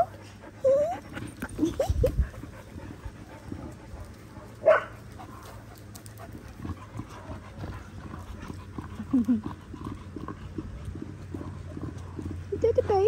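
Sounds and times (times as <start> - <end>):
dog barking: 4.4 - 5.0.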